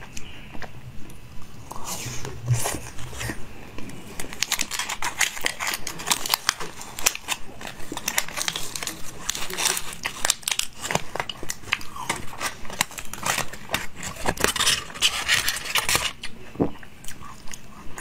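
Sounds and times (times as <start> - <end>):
chewing a chocolate treat: 1.7 - 18.0
foil wrapper crinkling: 4.1 - 16.3.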